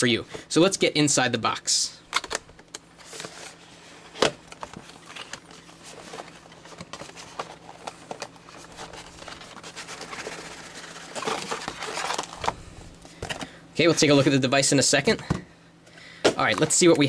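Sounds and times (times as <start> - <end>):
cardboard rustling and scraping: 3.0 - 13.4.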